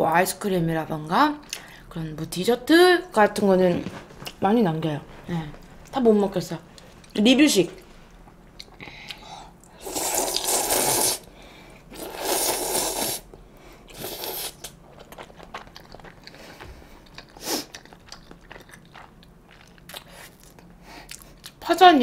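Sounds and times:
person chewing: 8.2s - 21.6s
person slurping noodles: 9.8s - 11.3s, 11.9s - 13.3s, 13.9s - 14.7s.

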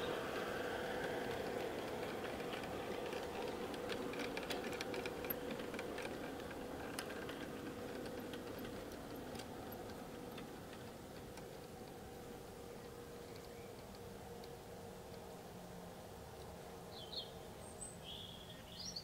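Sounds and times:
model train wheels clicking on track: 0.0s - 16.9s
model train motor hum: 0.0s - 17.6s.

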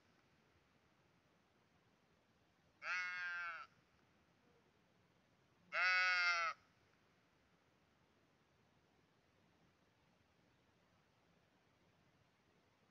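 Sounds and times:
sheep bleating: 2.8s - 3.7s, 5.7s - 6.6s.

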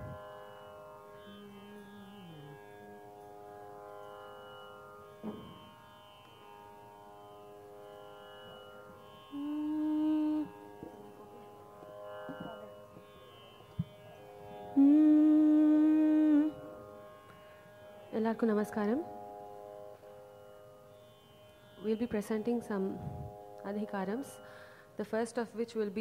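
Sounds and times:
electronic drone: 0.0s - 19.0s
person singing a held note: 9.4s - 10.5s, 14.8s - 16.6s.

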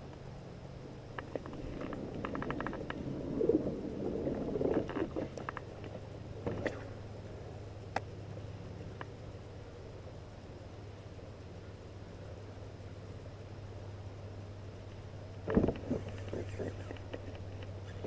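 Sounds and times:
small clicks: 1.1s - 3.0s, 4.6s - 6.9s, 14.9s - 18.0s
water sloshing against hull: 1.1s - 7.0s, 15.4s - 18.0s.

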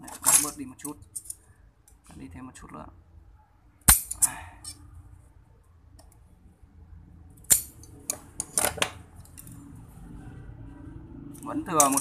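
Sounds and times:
metal shears snipping sheet metal: 3.9s - 4.4s, 7.4s - 8.9s.

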